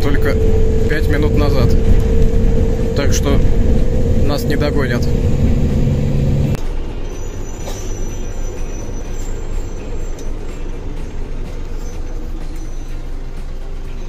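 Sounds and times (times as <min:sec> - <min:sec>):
bus engine and road noise: 0:00.0 - 0:14.0.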